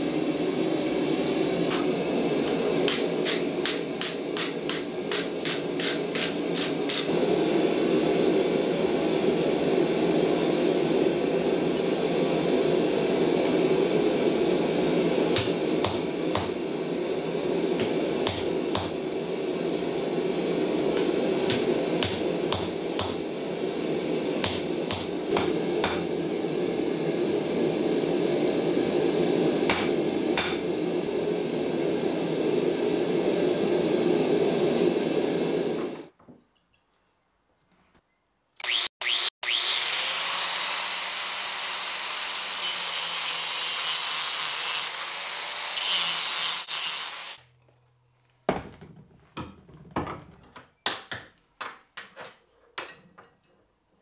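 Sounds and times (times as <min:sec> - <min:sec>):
hammer striking steel on anvil: 0:02.9 - 0:07.1, 0:15.4 - 0:16.6, 0:17.8 - 0:19.0, 0:21.0 - 0:23.3, 0:24.4 - 0:26.1, 0:29.7 - 0:30.7.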